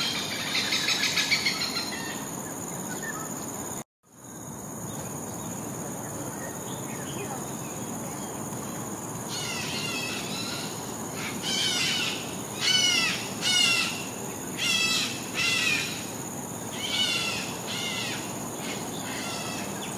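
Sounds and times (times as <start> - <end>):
bird harsh chattering calls: 0.0 - 2.3, 16.7 - 19.9.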